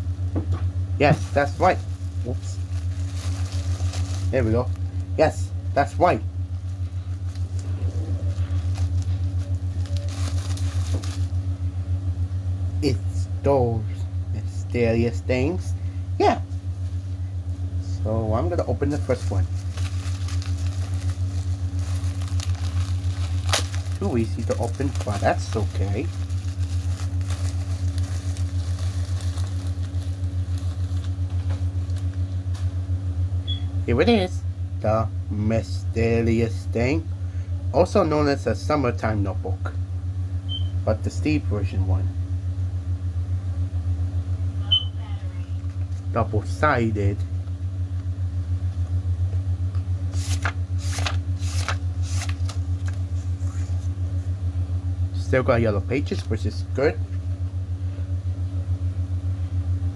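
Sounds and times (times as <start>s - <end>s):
low wavering hum: 0.0s - 59.9s
plastic packaging crinkling: 1.0s - 5.1s, 6.6s - 11.4s, 18.9s - 32.8s, 50.2s - 53.6s
notebook pages flicking: 8.4s - 11.3s, 19.1s - 32.7s, 50.1s - 53.6s.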